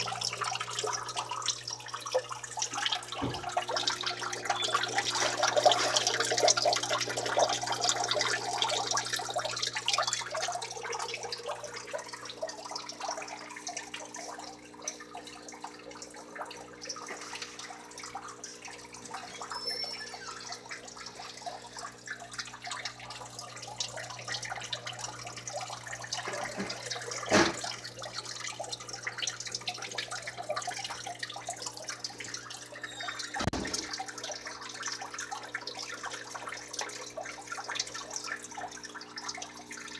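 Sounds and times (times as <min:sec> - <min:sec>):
water trickling and splashing: 0:00.0 - 0:39.9.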